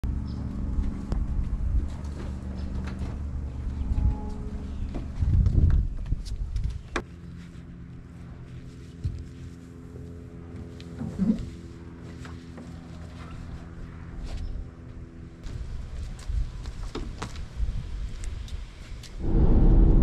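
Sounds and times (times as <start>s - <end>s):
low rumble: 0.0s - 6.0s, 19.2s - 20.0s
steady low hum: 0.0s - 15.9s, 19.2s - 20.0s.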